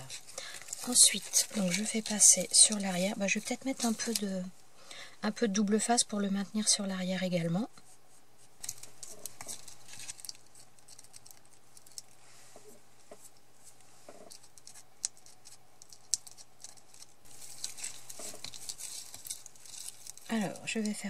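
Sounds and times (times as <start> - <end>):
card rustling on cutting mat: 12.6 - 21.0.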